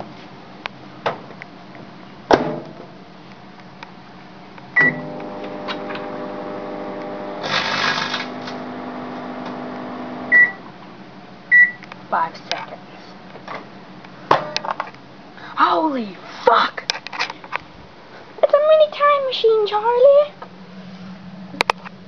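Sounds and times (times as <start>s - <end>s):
microwave oven humming: 4.0s - 11.9s
microwave keypad beep: 4.8s - 5.1s, 10.3s - 10.6s, 11.5s - 11.8s.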